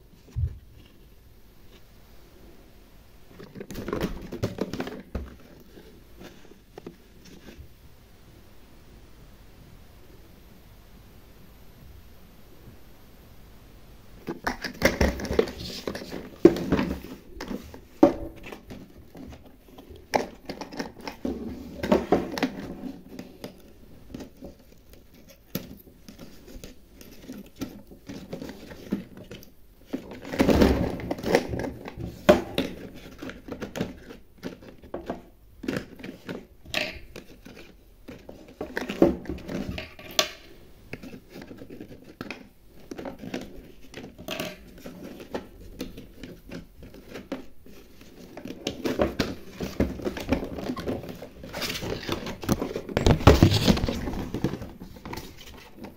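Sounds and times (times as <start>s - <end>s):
cardboard packaging tearing: 50.7s - 54.4s.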